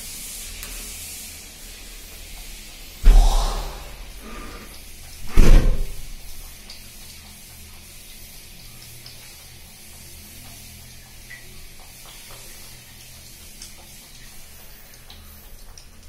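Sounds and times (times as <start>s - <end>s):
loud knock: 3.0s - 4.1s, 5.3s - 6.1s.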